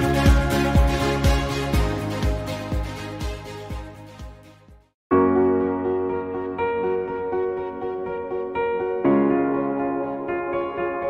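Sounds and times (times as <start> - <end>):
electronic music with kick drum: 0.0 - 4.9.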